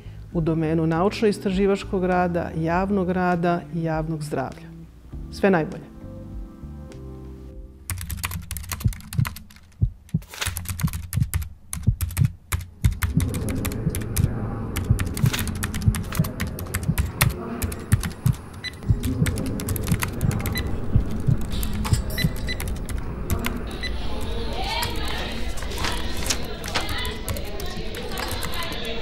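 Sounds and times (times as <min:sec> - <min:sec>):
computer keyboard typing: 0:07.9 - 0:29.0
low throbbing pulse: 0:12.8 - 0:23.9.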